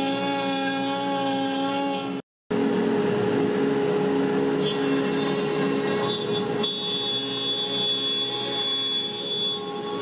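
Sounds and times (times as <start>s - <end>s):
router spindle whining: 0.0s - 2.2s.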